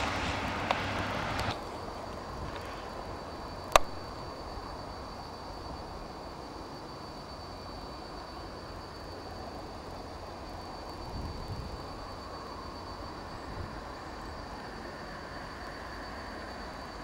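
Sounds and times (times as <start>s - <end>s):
distant diesel railcars running: 0.0s - 11.1s, 11.7s - 17.0s
faint high whine: 0.0s - 17.0s
sharp click: 3.7s - 4.0s.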